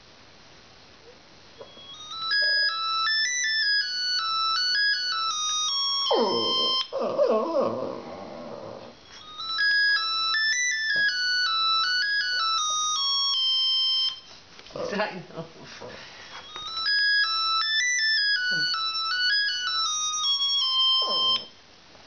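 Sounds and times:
phone ringtone melody of beeps: 1.6 - 7.0, 9.0 - 14.3, 16.4 - 21.6
dog howling: 6.1 - 9.0.

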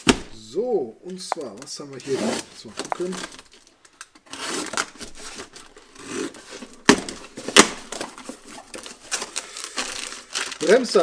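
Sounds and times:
rustling and scraping: 1.4 - 10.7
sharp cracks: 2.8 - 4.1
knife slitting packing tape: 4.2 - 6.4.

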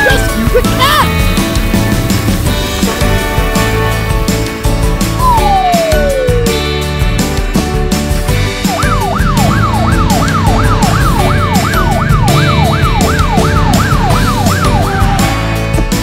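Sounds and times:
background music with steady beat: 0.0 - 16.0
fire truck siren yelping: 5.2 - 6.7, 8.6 - 15.6.

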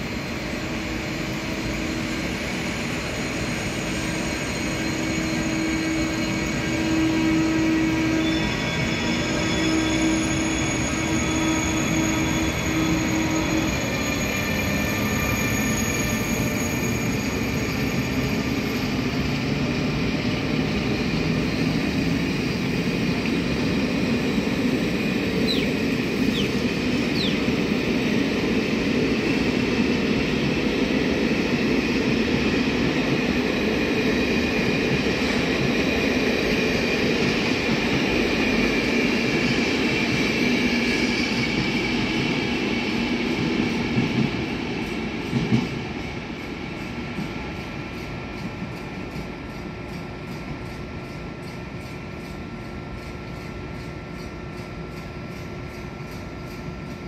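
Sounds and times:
train wheels rumbling on rails: 0.0 - 57.0
wheel squeals: 2.8 - 19.1.

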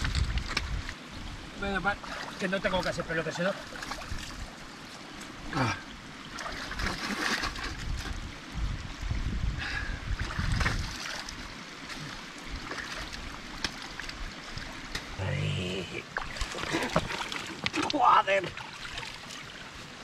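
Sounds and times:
stream running: 0.0 - 20.0.

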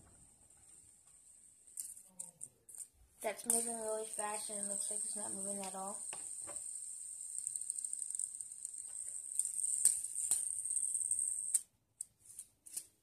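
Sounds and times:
fidget spinner whirring: 0.6 - 11.7
fingers clicking spinner: 1.7 - 11.7.

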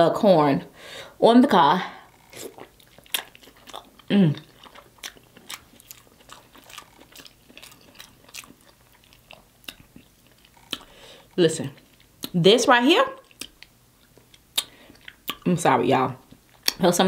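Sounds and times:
wet chewing and lip-smacking: 2.1 - 12.4, 13.2 - 15.5, 16.2 - 16.8.

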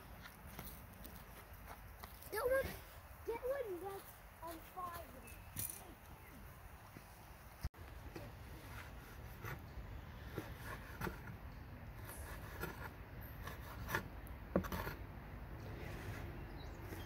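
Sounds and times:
knife scraping wooden board: 12.0 - 15.0.

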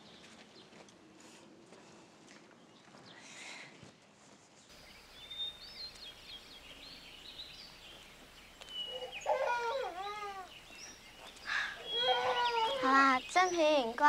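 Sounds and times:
small birds chirping: 4.6 - 14.0
small child crying: 9.2 - 10.6, 11.5 - 13.1.

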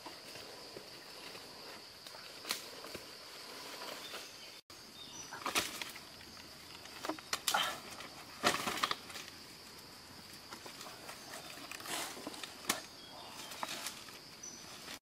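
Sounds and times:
insect drone: 0.0 - 15.0
rustling scraping of tree trunk: 10.3 - 15.0.

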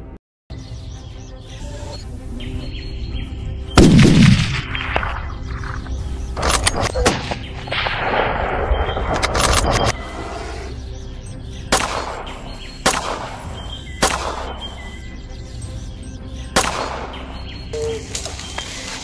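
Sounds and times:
background music: 0.0 - 19.0
gunshots: 3.8 - 4.8, 11.7 - 14.8, 16.6 - 17.3.

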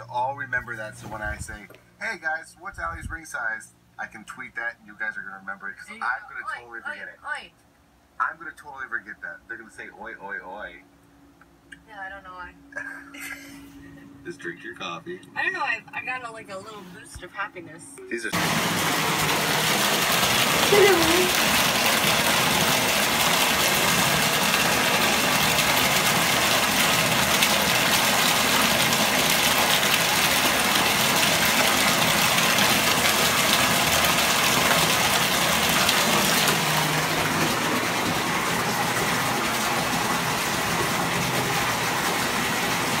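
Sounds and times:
water pouring into bathtub: 18.4 - 43.0.

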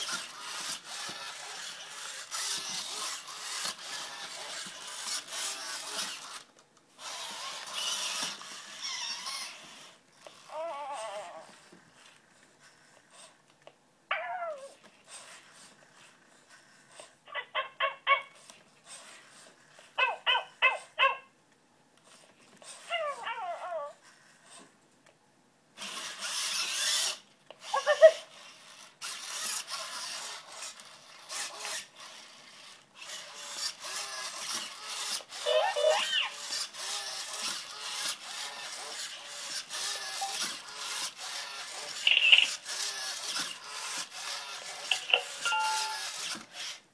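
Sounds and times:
rapid little barks: 20.0 - 21.3
electronic yelps and whines: 35.4 - 36.3
scratchy noise with clicks: 41.9 - 42.6, 44.8 - 45.5.

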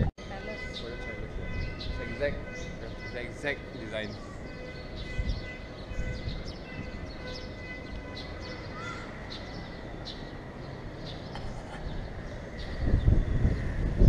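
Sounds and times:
wind on microphone: 0.0 - 8.4, 11.2 - 14.0
high bird chirps: 0.4 - 10.4.

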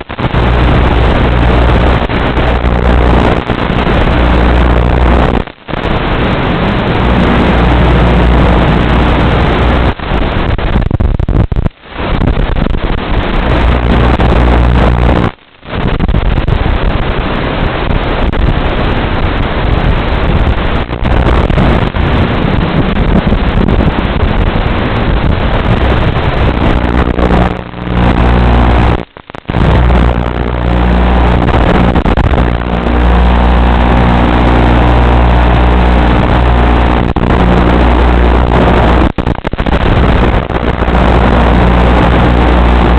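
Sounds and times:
wind rushing over microphone: 0.0 - 42.9.

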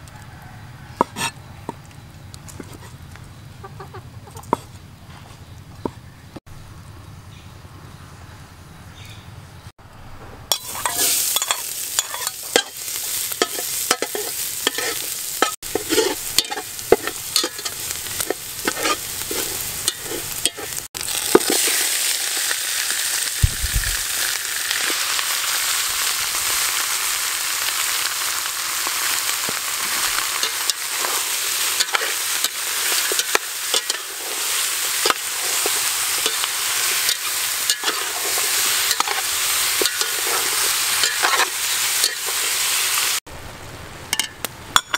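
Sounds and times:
hot oil crackling: 10.5 - 43.2
frying sizzle: 10.5 - 44.9
stirring sounds: 13.4 - 21.8.

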